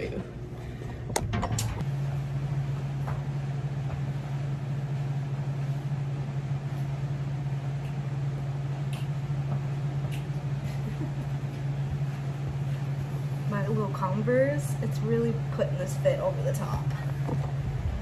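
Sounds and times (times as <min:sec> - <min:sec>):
low machine hum: 0:00.0 - 0:18.0.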